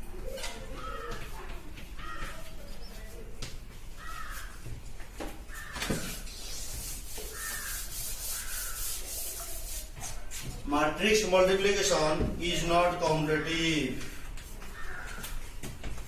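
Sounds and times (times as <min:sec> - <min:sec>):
chalk writing on blackboard: 0:05.5 - 0:10.6
duster rubbing across board: 0:05.5 - 0:10.6
bird calls: 0:07.2 - 0:09.0.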